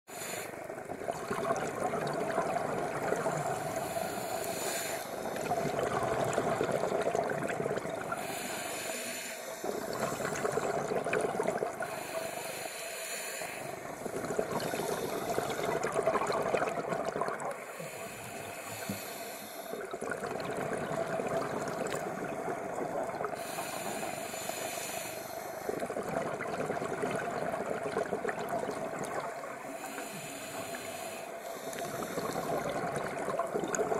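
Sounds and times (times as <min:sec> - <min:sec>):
diver breathing through regulator: 0:00.1 - 0:00.7, 0:03.1 - 0:07.0, 0:07.8 - 0:11.0, 0:11.7 - 0:16.7, 0:17.5 - 0:20.0, 0:21.6 - 0:26.0, 0:29.6 - 0:33.5.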